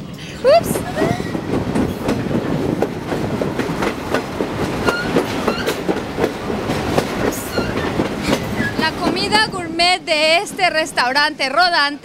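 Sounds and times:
train cars rattling: 0:00.0 - 0:12.0
train wheels clicking: 0:00.1 - 0:11.4
high squeaks: 0:04.8 - 0:05.8, 0:07.4 - 0:08.9.

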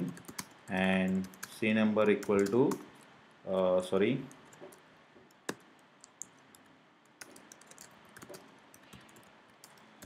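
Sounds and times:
keyboard typing clicks: 0:04.3 - 0:09.9.

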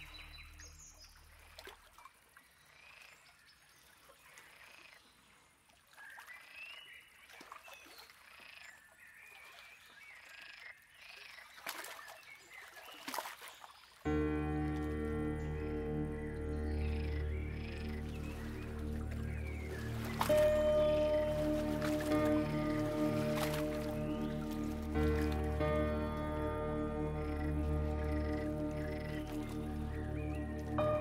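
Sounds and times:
soft music: 0:00.0 - 0:01.1, 0:14.1 - 0:31.0
birds chirping and whistling: 0:15.4 - 0:26.1.

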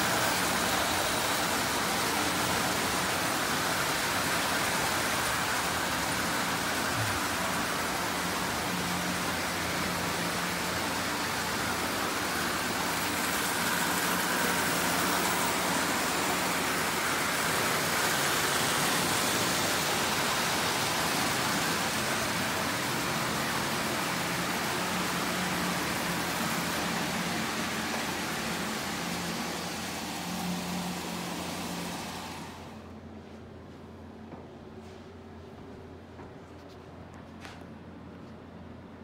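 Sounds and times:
toy trains rattling on track: 0:00.0 - 0:32.5.

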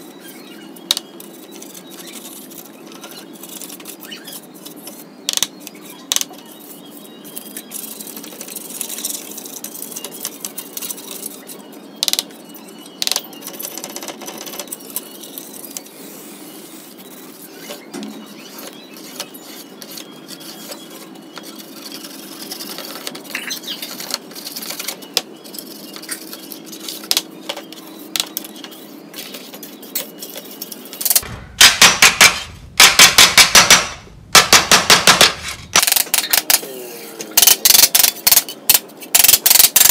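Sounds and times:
hammer blows on sheet metal: 0:31.2 - 0:35.8.

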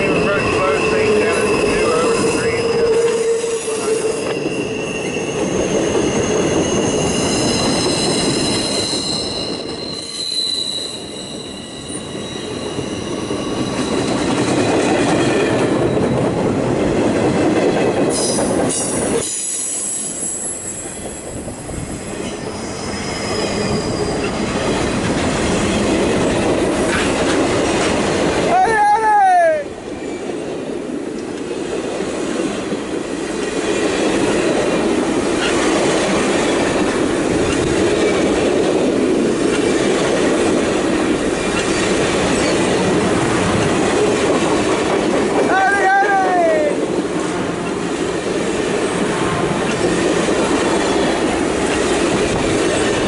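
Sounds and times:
high wheel squeal: 0:00.0 - 0:14.6, 0:18.2 - 0:24.5
train wheels rumbling on rails: 0:00.0 - 0:53.0.

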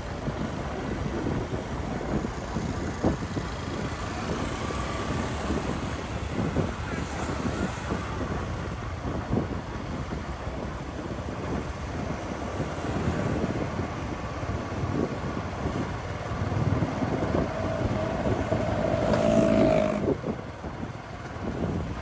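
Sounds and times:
engine and road noise: 0:00.0 - 0:22.0
wind buffeting microphone: 0:00.0 - 0:22.0.

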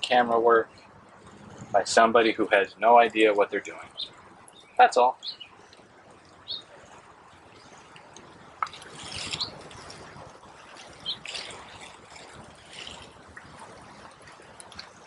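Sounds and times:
high bird chirps: 0:03.9 - 0:05.6, 0:06.5 - 0:06.7, 0:09.2 - 0:09.6, 0:11.0 - 0:11.4.

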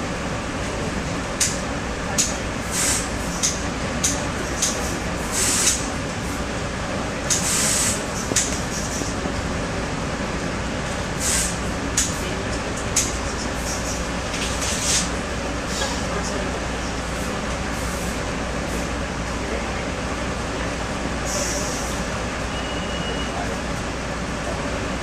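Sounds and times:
train wheels rumbling on rails: 0:00.0 - 0:25.0
short bursts of hiss: 0:07.4 - 0:08.0, 0:11.2 - 0:11.6.

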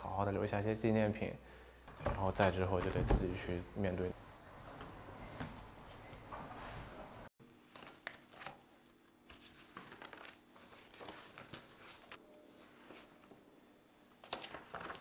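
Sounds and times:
paper pages rustling and turning: 0:07.6 - 0:13.4, 0:14.1 - 0:15.0.

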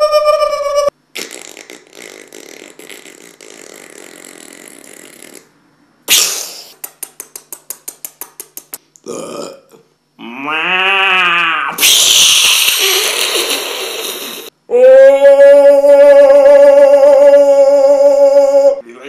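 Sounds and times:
loud mouth burst: 0:01.1 - 0:07.0, 0:11.7 - 0:14.6
man's hissing mouth noise: 0:01.1 - 0:07.5, 0:11.8 - 0:14.6
rapid mouth clicks: 0:06.1 - 0:09.1
long loud belch: 0:09.0 - 0:09.8.

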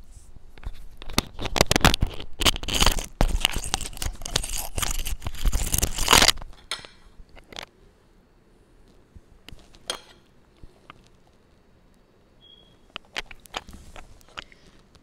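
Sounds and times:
microphone rustling against fabric: 0:13.6 - 0:14.4.

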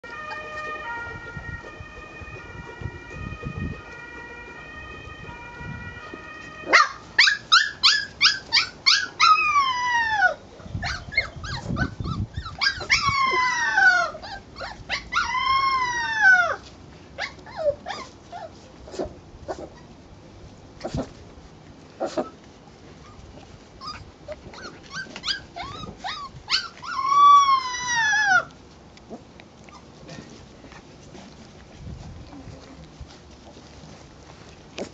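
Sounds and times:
steady high tone: 0:00.0 - 0:06.8
puppies yelping and howling: 0:00.0 - 0:18.6, 0:23.8 - 0:28.6.

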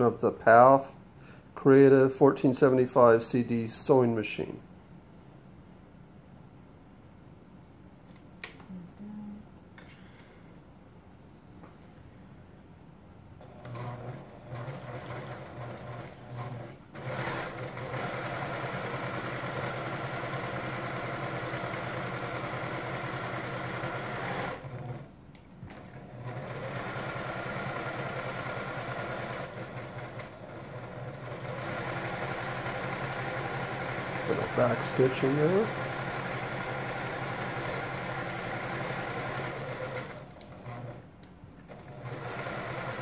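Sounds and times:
sewing machine stitching: 0:13.4 - 0:43.0.

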